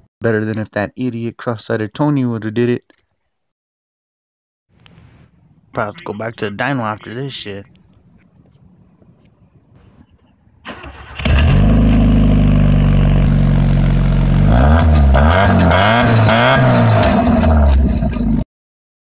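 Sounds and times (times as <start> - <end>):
car engine starting and revving: 10.6 - 18.4.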